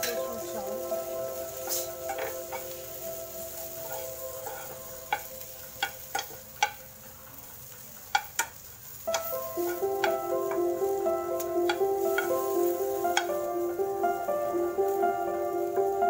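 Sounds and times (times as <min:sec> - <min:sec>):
soft background music: 0:00.0 - 0:08.4, 0:09.0 - 0:16.0
faint sizzle of frying: 0:00.0 - 0:16.0
metal spoon clinking against pan: 0:03.8 - 0:06.8.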